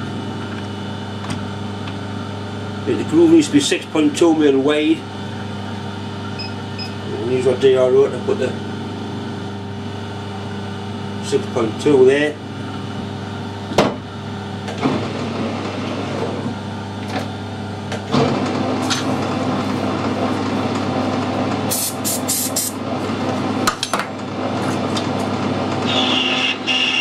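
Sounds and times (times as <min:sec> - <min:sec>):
lathe running: 0:14.6 - 0:27.0.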